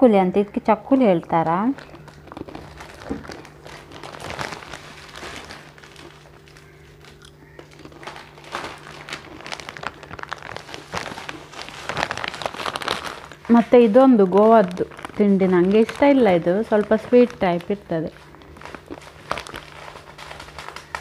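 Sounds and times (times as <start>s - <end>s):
steady low hum: 0.0s - 21.0s
plastic bags crinkling: 1.4s - 21.0s.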